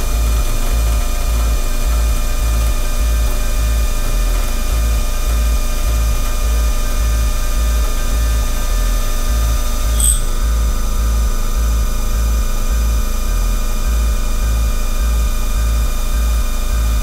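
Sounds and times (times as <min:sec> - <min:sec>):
milling machine whine: 0:00.0 - 0:12.3
sharp machine squeal: 0:09.8 - 0:10.7.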